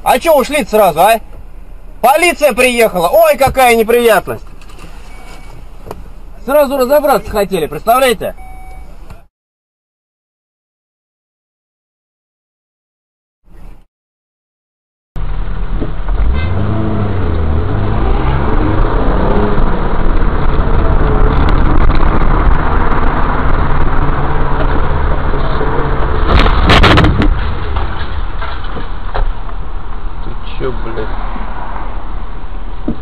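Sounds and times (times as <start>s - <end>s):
car engine driving: 0.0s - 9.3s, 15.2s - 33.0s
road noise: 0.0s - 9.3s, 13.4s - 13.9s, 15.2s - 33.0s.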